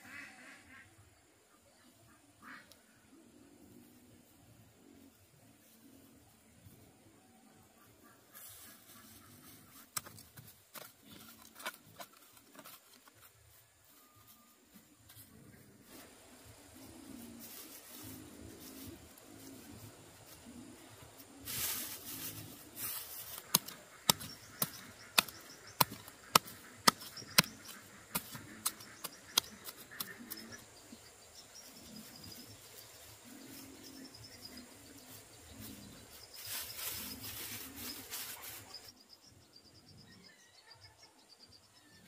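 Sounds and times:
straw mulch rustling: 0:08.3 - 0:31.0, 0:31.6 - 0:38.9
sharp ticks: 0:23.4 - 0:30.6.

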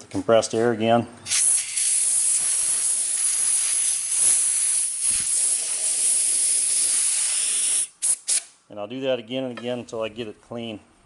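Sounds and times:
compressed air blow gun hissing: 0:01.3 - 0:08.5.

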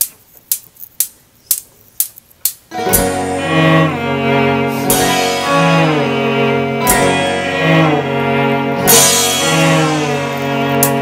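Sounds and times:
bowed cello sustained notes: 0:02.7 - 0:11.0
guitars: 0:02.7 - 0:11.0
sharp drum hit: 0:04.7 - 0:08.1, 0:08.8 - 0:11.0.

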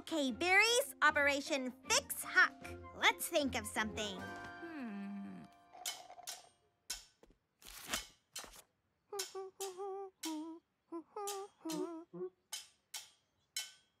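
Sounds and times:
person humming a tune: 0:04.6 - 0:05.5, 0:09.1 - 0:12.5.

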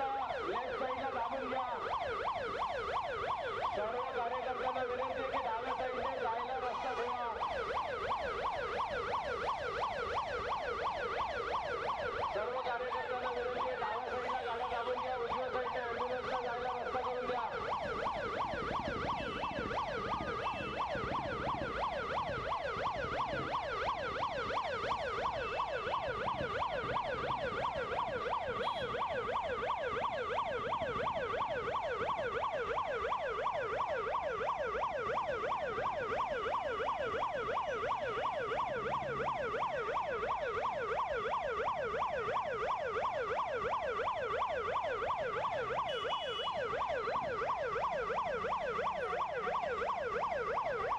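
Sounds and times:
electronic siren yelping: 0:00.0 - 0:50.9.

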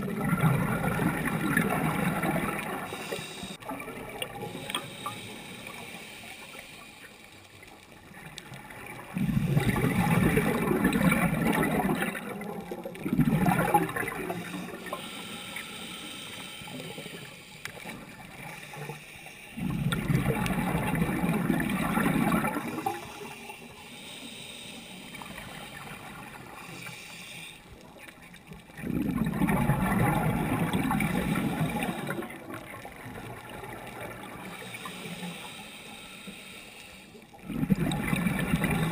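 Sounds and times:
exhaled bubbles underwater: 0:00.0 - 0:06.1, 0:07.9 - 0:15.7, 0:19.6 - 0:23.6, 0:27.8 - 0:35.2, 0:37.3 - 0:38.9
water hiss: 0:00.8 - 0:07.9, 0:08.5 - 0:28.1, 0:30.0 - 0:38.9.

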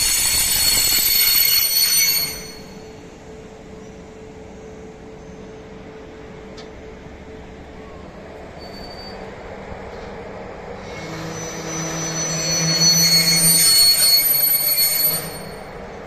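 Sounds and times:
railway wheels squealing: 0:00.0 - 0:04.2, 0:08.4 - 0:16.0.

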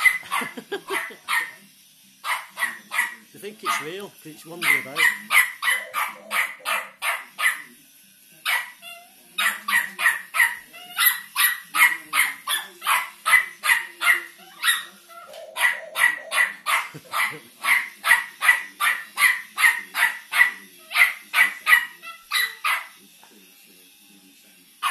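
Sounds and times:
small dog barking fast: 0:00.0 - 0:01.5, 0:02.3 - 0:03.9, 0:04.6 - 0:07.7, 0:09.4 - 0:14.9, 0:15.5 - 0:22.9.

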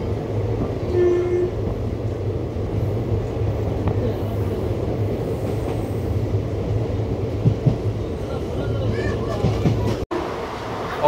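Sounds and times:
train wheels on rails: 0:00.0 - 0:11.0.

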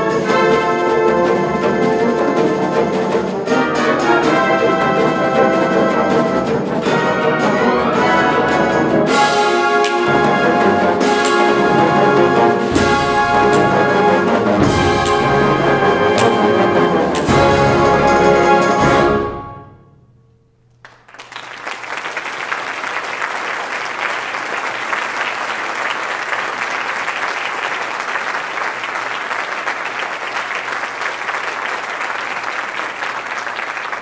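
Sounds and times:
wind band playing loud chords: 0:00.0 - 0:20.0
audience applause: 0:20.8 - 0:34.0.

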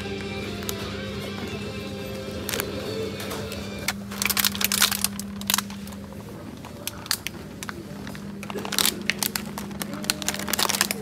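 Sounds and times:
steady low hum: 0:00.0 - 0:11.0
plastic egg pack crinkling: 0:02.4 - 0:02.8, 0:03.8 - 0:11.0.

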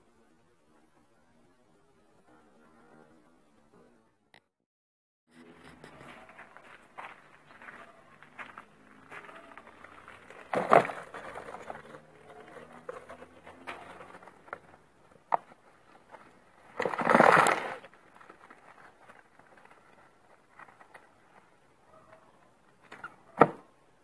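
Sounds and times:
cardboard rustling and scraping: 0:09.8 - 0:21.6.

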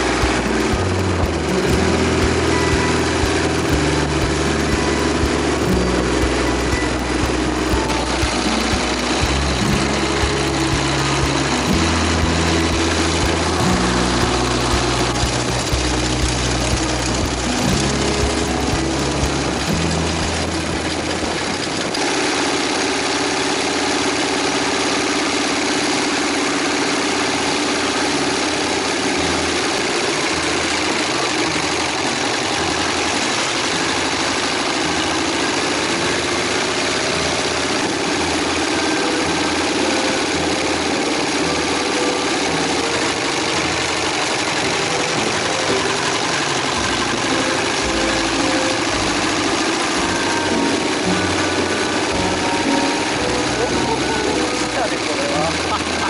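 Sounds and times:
motorcycle engine running: 0:00.0 - 0:56.0
wind and road noise: 0:12.9 - 0:24.0.

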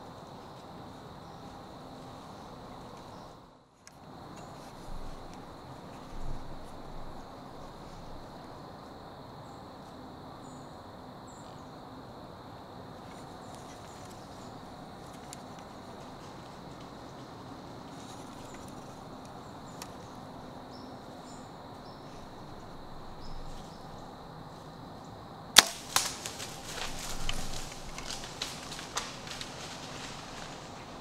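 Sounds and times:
sharp crack of bow shot: 0:25.6 - 0:27.4
arrow smacking a branch: 0:25.6 - 0:30.5
deer crashing through dry leaves: 0:25.6 - 0:31.0.

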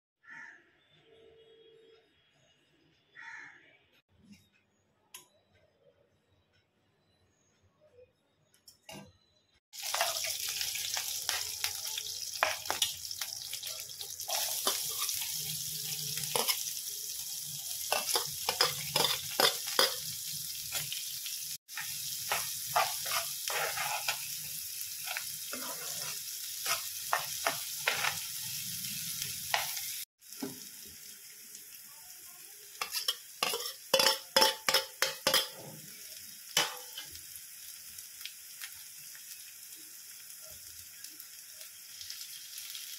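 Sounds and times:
oil sizzling in a pan: 0:09.7 - 0:42.9
steel spoon scraping a pan: 0:14.0 - 0:16.8, 0:17.8 - 0:21.0, 0:21.7 - 0:28.6, 0:32.8 - 0:35.8.

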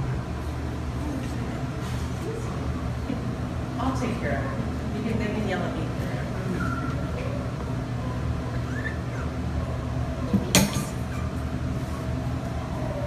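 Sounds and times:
low mechanical hum: 0:00.0 - 0:13.0
faint rising squeak: 0:06.5 - 0:07.2, 0:08.1 - 0:09.8.

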